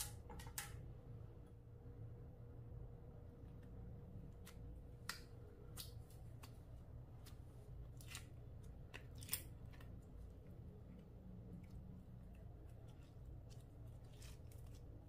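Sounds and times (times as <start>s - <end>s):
slime clicking and crackling: 4.4s - 10.0s.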